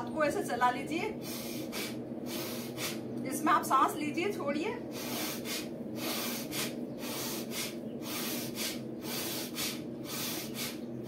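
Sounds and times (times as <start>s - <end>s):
woman breathing forcefully through nose: 1.2s - 3.1s, 4.9s - 11.0s.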